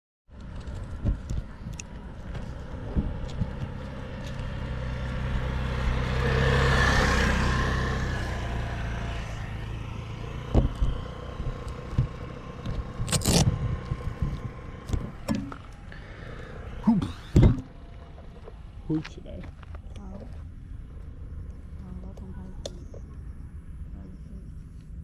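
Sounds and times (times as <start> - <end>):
motor humming: 9.2 - 18.8.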